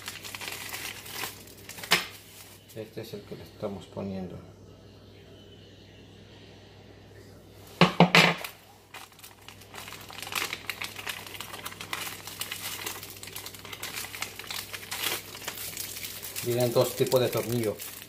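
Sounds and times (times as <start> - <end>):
plastic bag crinkling: 0.0 - 3.0, 8.2 - 18.0.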